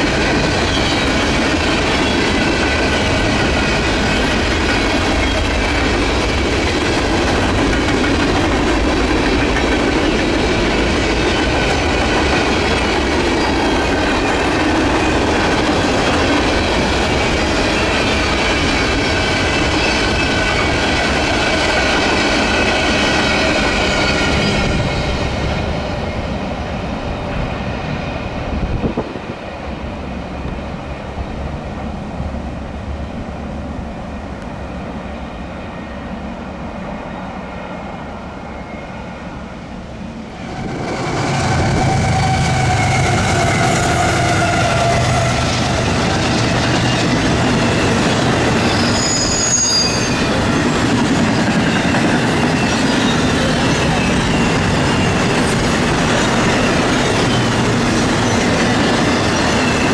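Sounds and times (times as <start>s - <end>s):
train wheels squealing: 0.0s - 6.2s, 7.5s - 26.5s, 37.1s - 39.8s, 40.4s - 59.9s
freight train rolling on rails: 0.0s - 59.9s.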